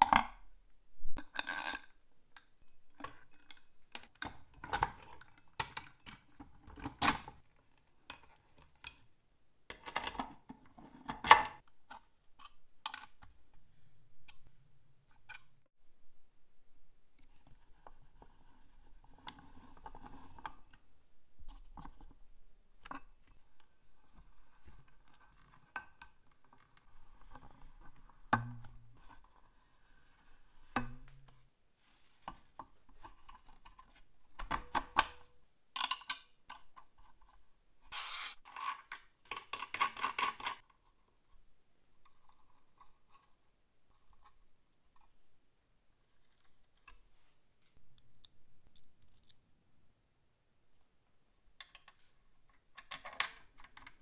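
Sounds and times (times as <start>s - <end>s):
small hard parts scraping: 37.9s - 40.6s.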